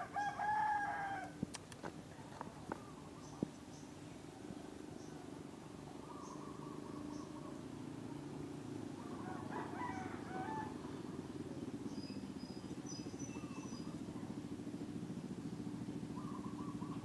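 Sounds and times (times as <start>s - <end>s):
crowing call: 5.9s - 7.7s, 9.0s - 11.2s, 16.0s - 17.0s
faint high bird chirps: 5.9s - 7.7s, 11.6s - 14.4s, 15.6s - 17.0s.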